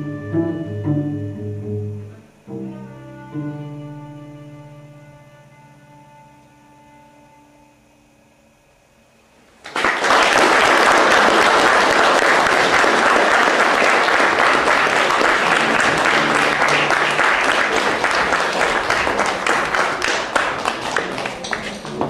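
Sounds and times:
audience applause: 0:09.6 - 0:22.0.

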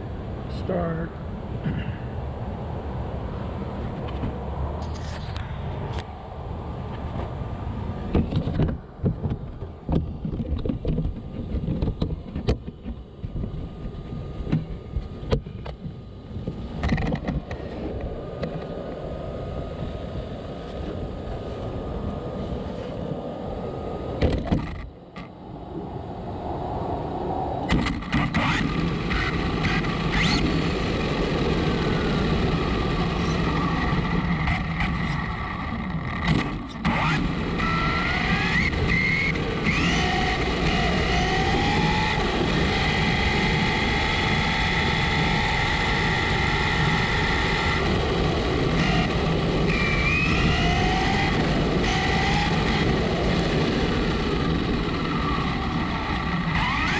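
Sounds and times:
rc truck drivetrain and tyre noise: 0:00.0 - 0:56.9
electric motor whine: 0:27.8 - 0:56.9.

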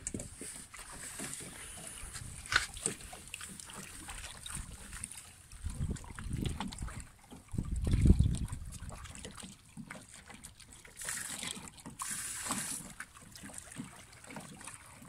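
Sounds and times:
waves lapping among rocks: 0:00.0 - 0:15.0
hissing washes of water: 0:11.0 - 0:13.1.

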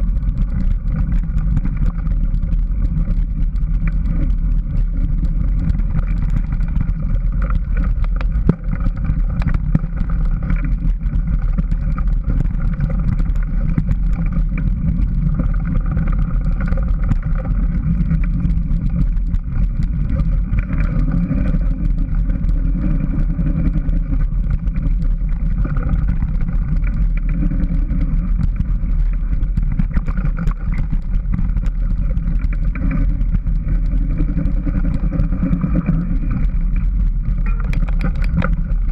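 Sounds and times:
bike rattling on dirt trail: 0:00.0 - 0:38.9
wind rumble on microphone: 0:00.0 - 0:38.9.

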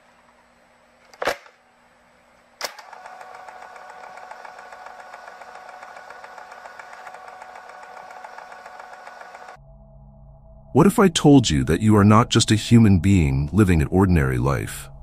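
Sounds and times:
projector hum: 0:00.0 - 0:09.6
projector clicks: 0:02.6 - 0:09.6
projector mechanical clatter: 0:02.6 - 0:09.6.

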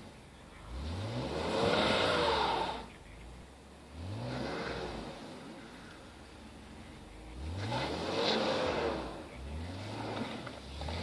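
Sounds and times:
car engine revving: 0:00.0 - 0:11.0
wheels spinning in snow: 0:07.3 - 0:11.0.

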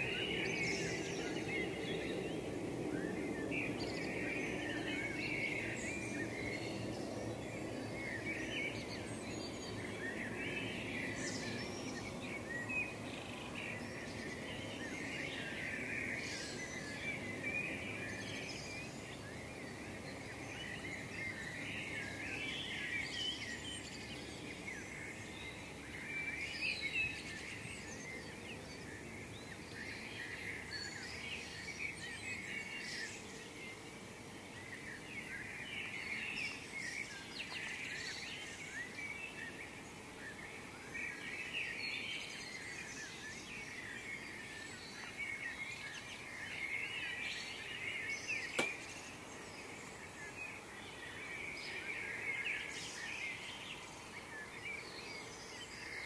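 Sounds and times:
songbirds singing: 0:00.0 - 0:56.0
sharp click: 0:48.6 - 0:48.9.

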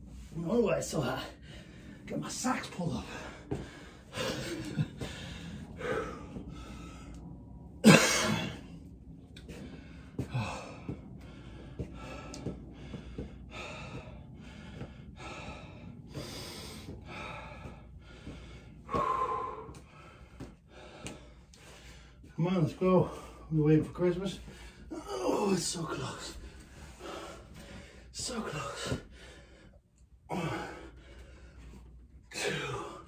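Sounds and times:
man breathing hard: 0:01.3 - 0:02.1, 0:02.8 - 0:22.4, 0:23.0 - 0:23.6, 0:24.4 - 0:33.0
man gasping: 0:03.0 - 0:07.2, 0:09.4 - 0:22.2, 0:26.3 - 0:31.7.

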